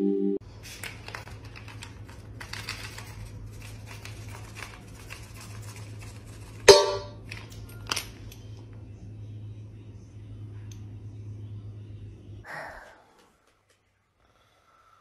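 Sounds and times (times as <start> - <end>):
low steady hum: 0.0 - 13.2
dry kibble rattling into bowl: 0.8 - 8.0
metal bowl clanging: 6.7 - 7.2.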